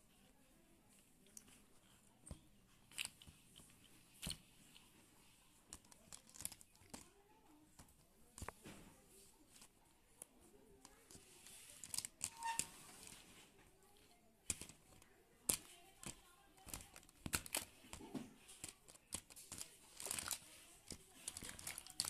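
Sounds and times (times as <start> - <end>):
plastic toys clicking and clacking: 1.2 - 8.7, 9.5 - 22.0
rustling: 14.5 - 22.0.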